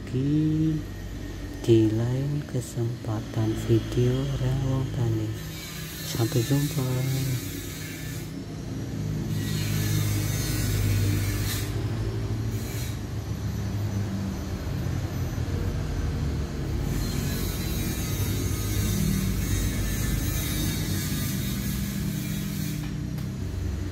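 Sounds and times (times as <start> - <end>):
motor running steadily: 0.0 - 23.9.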